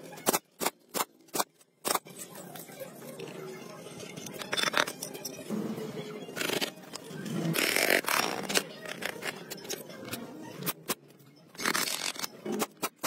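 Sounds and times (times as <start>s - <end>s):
metal parts scraping: 3.9s - 10.9s.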